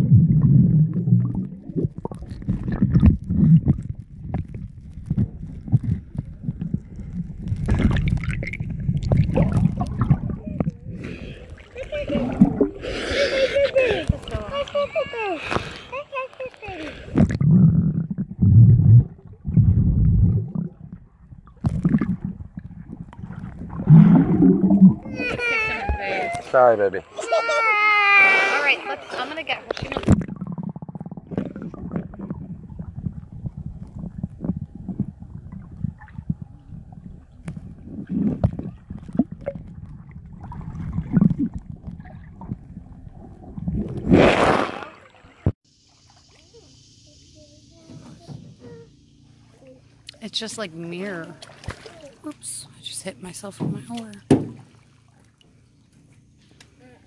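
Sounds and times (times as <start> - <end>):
muffled underwater water sloshing: 0.0 - 26.5, 28.9 - 56.6
faint high hiss: 45.7 - 49.8
knocks and thumps: 53.5 - 54.6.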